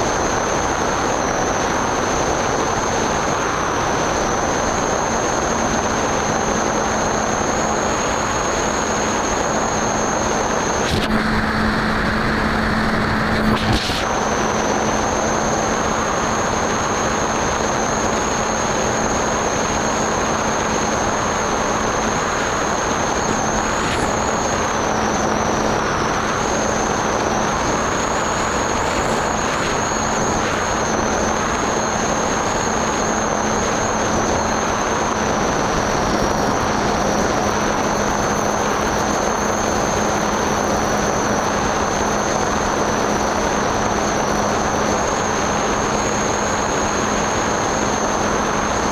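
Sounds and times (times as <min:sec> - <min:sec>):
electric propeller noise: 0:00.0 - 0:48.9
low hum: 0:00.0 - 0:48.9
thin high whine: 0:00.0 - 0:48.9
airflow rushing: 0:10.2 - 0:17.2.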